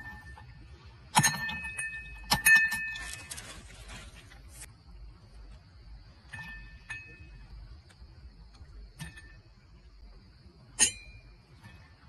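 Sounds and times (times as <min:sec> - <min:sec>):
tableware clinking: 0:00.0 - 0:03.3, 0:10.8 - 0:12.0
faint high-pitched whine: 0:00.0 - 0:12.0.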